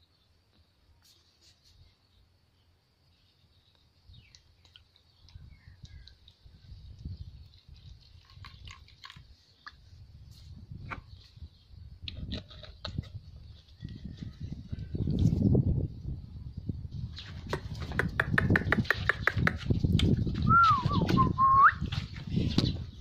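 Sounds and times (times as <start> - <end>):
liquid pouring into plastic tub: 7.4 - 9.7.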